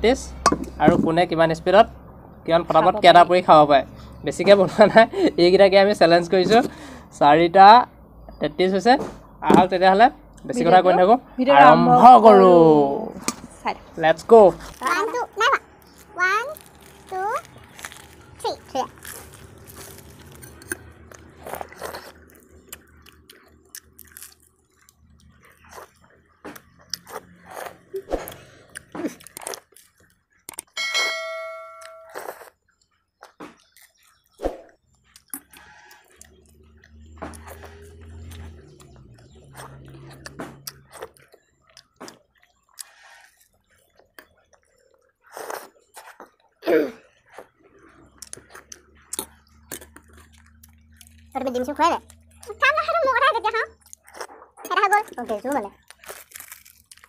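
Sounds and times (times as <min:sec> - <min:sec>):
people chewing and crunching: 0:00.3 - 0:30.8, 0:31.8 - 0:57.0
lip smacks: 0:32.2 - 0:51.4.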